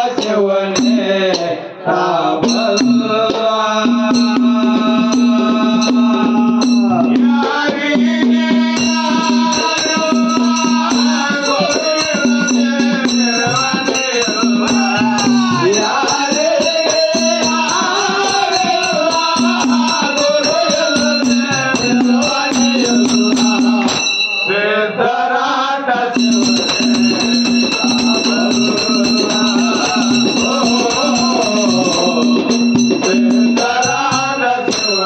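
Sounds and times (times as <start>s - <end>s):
hand-played barrel drum: 0.0s - 1.6s, 2.3s - 24.2s, 26.2s - 35.0s
large drum beating steady rhythm: 0.0s - 1.6s, 2.3s - 24.2s, 26.2s - 35.0s
small hand cymbals ringing: 8.7s - 24.7s, 26.2s - 35.0s
man singing long bending notes: 26.0s - 35.0s.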